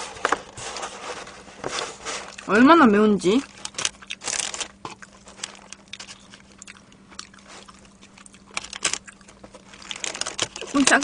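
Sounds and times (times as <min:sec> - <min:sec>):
paper rustling: 0:00.0 - 0:02.4, 0:03.6 - 0:06.3, 0:08.6 - 0:11.0.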